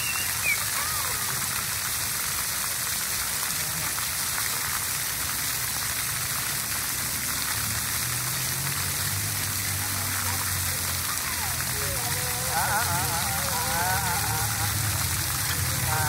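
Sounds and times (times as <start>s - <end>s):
fountain water spraying: 0.0s - 16.0s
water pattering on wet concrete: 0.0s - 16.0s.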